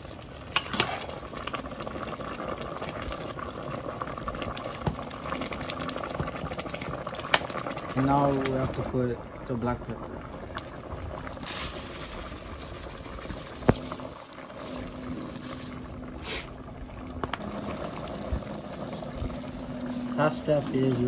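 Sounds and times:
pot simmering and bubbling: 0:00.0 - 0:21.0
faint hum: 0:13.1 - 0:21.0.

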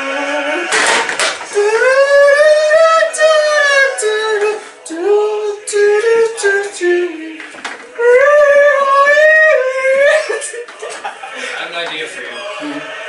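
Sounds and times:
man singing in falsetto: 0:00.0 - 0:00.8, 0:01.5 - 0:07.3, 0:08.0 - 0:10.6.

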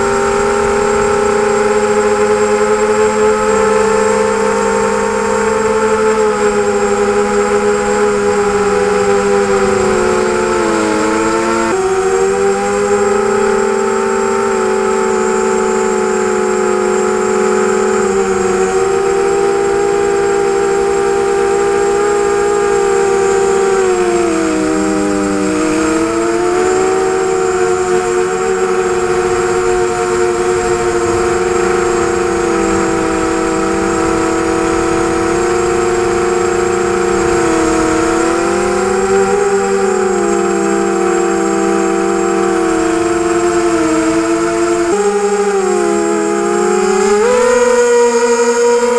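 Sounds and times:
drone motors whining: 0:00.0 - 0:48.9.

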